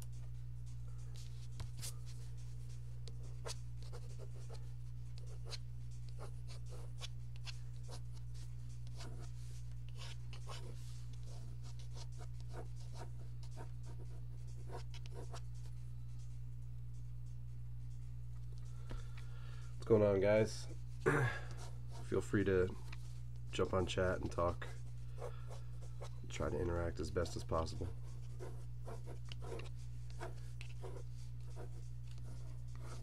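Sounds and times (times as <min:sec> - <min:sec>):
low electrical hum: 0:00.0 - 0:33.0
pencil scratching on paper: 0:01.2 - 0:15.7, 0:24.4 - 0:33.0.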